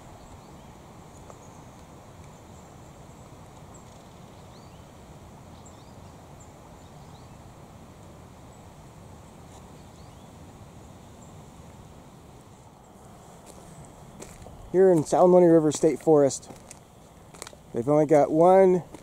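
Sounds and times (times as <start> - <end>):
low rushing noise: 10.2 - 19.0.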